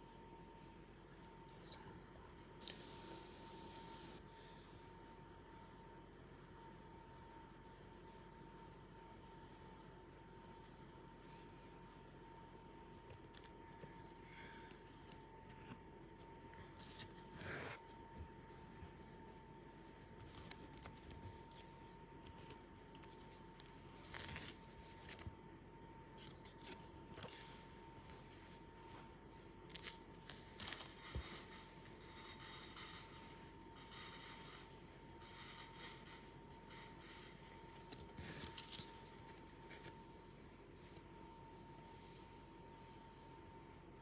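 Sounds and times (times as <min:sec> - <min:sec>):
faint high-pitched hum: 0:00.0 - 0:44.0
cards rustling and scraping: 0:16.6 - 0:25.4, 0:26.1 - 0:42.8
card packs crinkling: 0:19.8 - 0:25.4, 0:29.6 - 0:31.2, 0:37.8 - 0:40.0.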